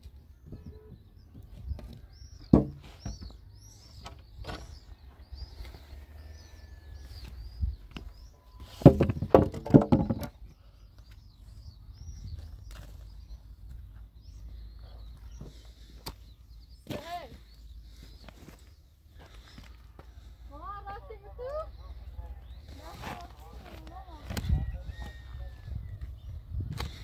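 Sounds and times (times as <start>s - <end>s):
bird chirping: 0.0s - 27.0s
sharp knocks: 2.5s - 2.8s
clatter of knocks: 8.8s - 10.3s.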